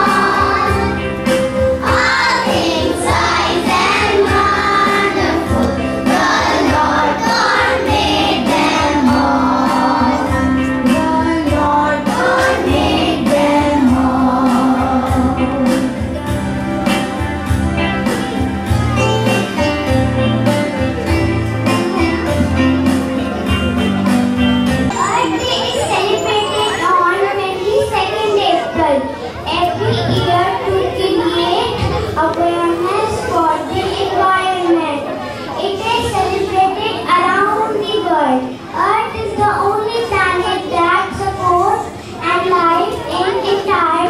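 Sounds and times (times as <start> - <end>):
children singing: 0.0 - 16.0
backing music with steady beat: 0.0 - 27.1.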